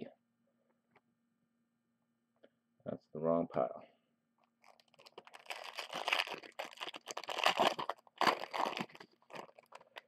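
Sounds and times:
foil wrapper tearing and crinkling: 4.6s - 10.0s.

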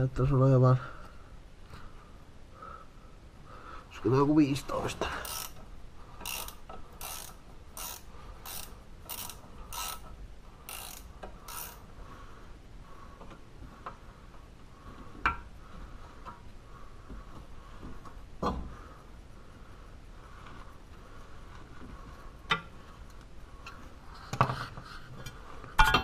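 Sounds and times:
ratchet wrench rasping: 5.2s - 5.6s, 6.2s - 11.9s.

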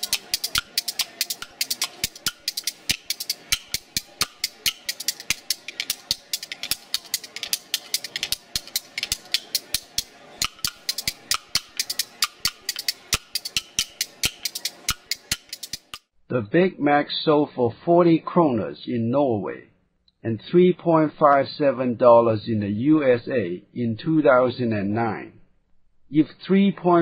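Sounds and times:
wood-block-like percussion clicks: 0.0s - 16.0s.

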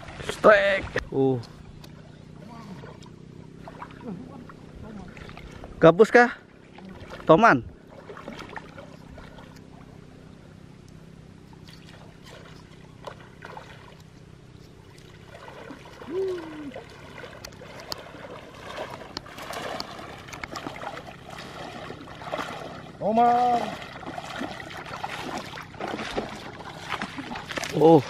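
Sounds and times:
water trickling and splashing: 0.0s - 28.0s
short vocal sound: 16.1s - 16.8s.

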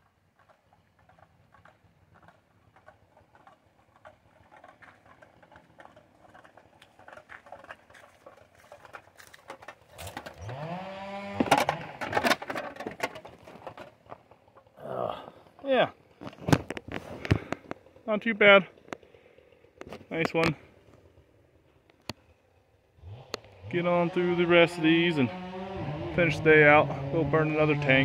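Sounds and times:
footsteps crunching on debris: 0.4s - 14.4s.

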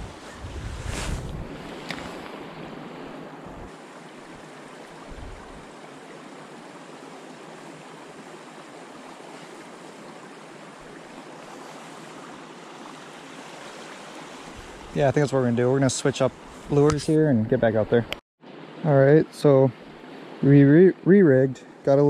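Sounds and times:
wind buffeting microphone: 0.0s - 2.7s, 5.1s - 5.7s
creek water running: 0.0s - 22.0s.

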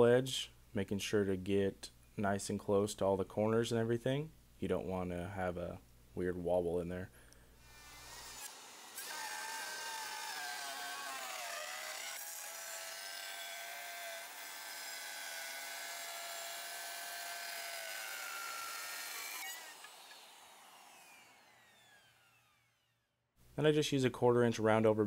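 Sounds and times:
router whining: 7.6s - 22.9s
router cutting wood: 7.7s - 22.9s.

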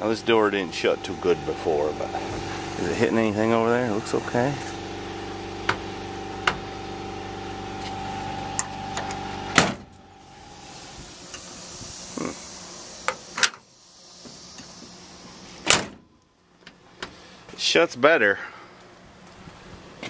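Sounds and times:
steady mechanical hum: 0.0s - 20.0s
car door slamming: 5.6s - 6.7s, 7.9s - 10.0s, 15.6s - 16.1s.

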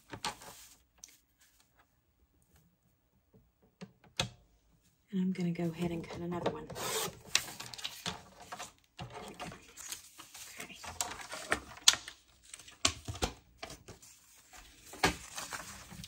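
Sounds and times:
paper rustling: 0.0s - 1.7s, 6.8s - 16.0s.

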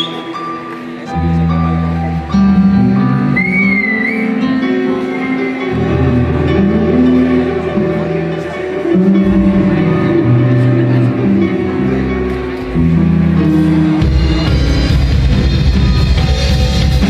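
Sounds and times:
live band music: 0.0s - 17.0s
flute phrase: 3.2s - 5.7s.

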